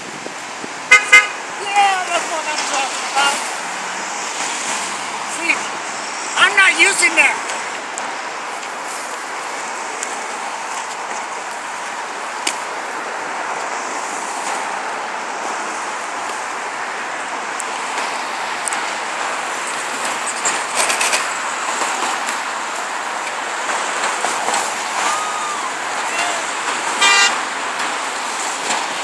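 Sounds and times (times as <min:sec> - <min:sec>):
road traffic: 0:00.0 - 0:29.0.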